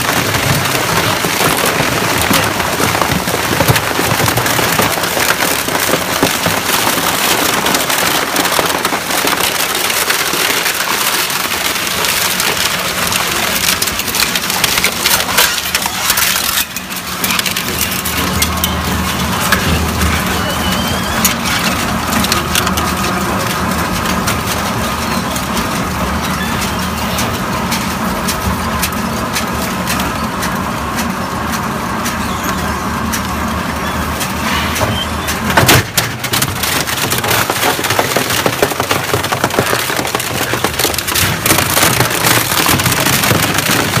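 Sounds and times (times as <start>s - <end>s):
metal and plastic cracking: 0.0s - 32.2s, 34.2s - 44.0s.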